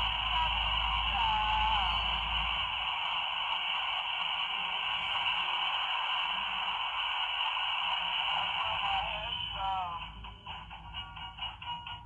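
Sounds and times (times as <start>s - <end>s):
static hiss: 0.0s - 9.4s.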